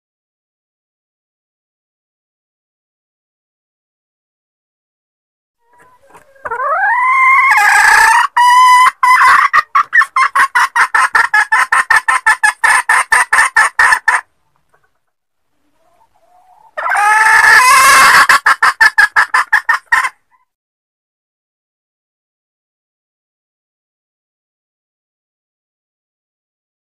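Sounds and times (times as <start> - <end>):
hen cackling: 5.6 - 14.9, 15.8 - 20.5.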